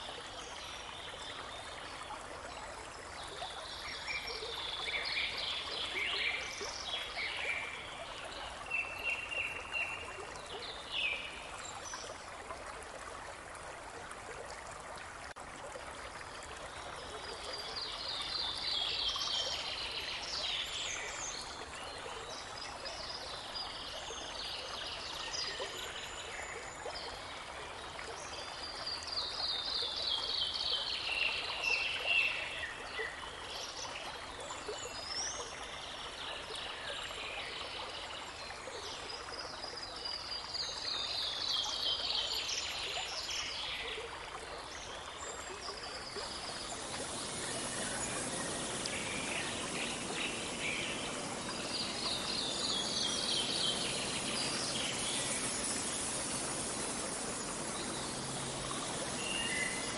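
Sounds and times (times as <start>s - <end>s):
babbling brook: 0.0s - 59.9s
songbirds chirping: 44.8s - 59.9s.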